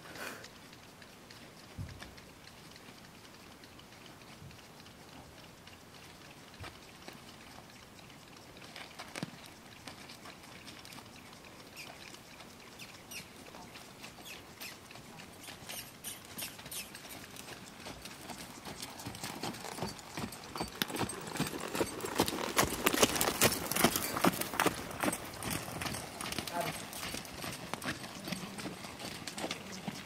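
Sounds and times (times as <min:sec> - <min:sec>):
horse hoofbeats on sand: 0:08.6 - 0:30.0.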